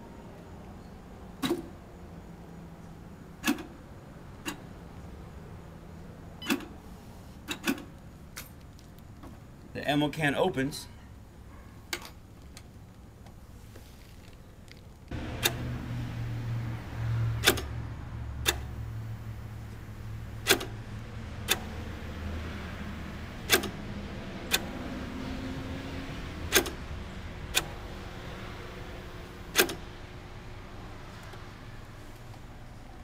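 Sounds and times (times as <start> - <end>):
sharp clicks: 17.4 - 17.7, 18.4 - 18.7, 20.4 - 20.8, 21.4 - 21.7, 23.5 - 23.8, 26.5 - 26.8.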